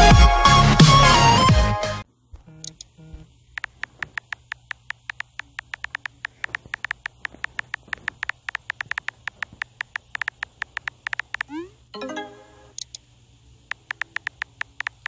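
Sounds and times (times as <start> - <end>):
phone keyboard typing clicks: 2.4 - 11.6, 13.7 - 15.0.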